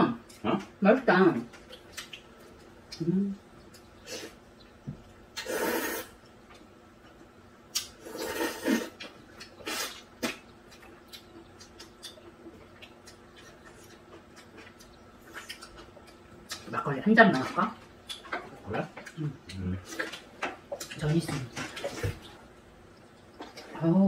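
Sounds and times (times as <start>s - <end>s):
mouth sounds of eating: 1.7s - 4.7s, 5.3s - 6.7s, 7.7s - 22.4s.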